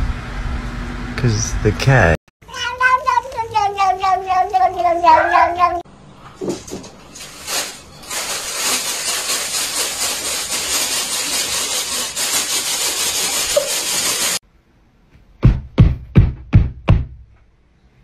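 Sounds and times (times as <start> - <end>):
plastic bag crinkling: 7.1 - 14.1
loud knocks: 15.4 - 17.2.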